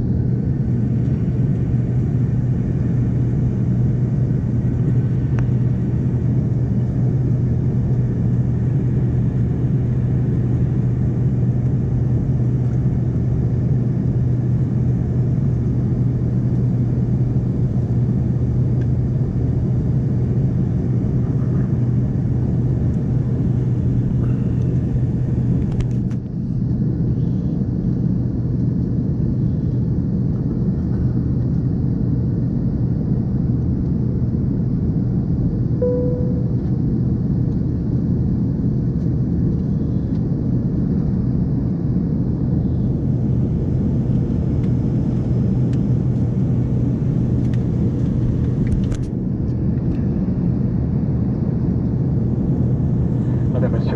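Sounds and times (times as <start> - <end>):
low hum: 0.0 - 27.6, 35.4 - 38.3
jet cabin rumble: 0.0 - 53.9.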